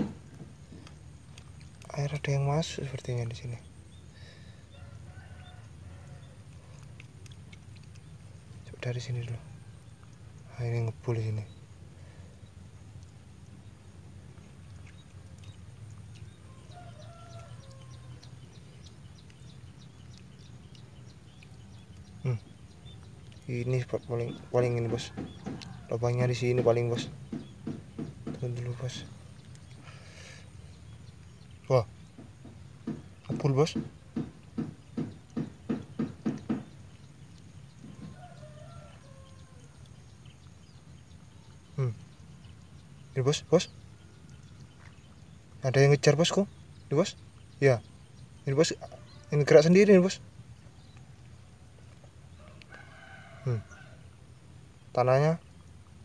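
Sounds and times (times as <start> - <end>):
drawn-out bird call: 14.4 - 56.0.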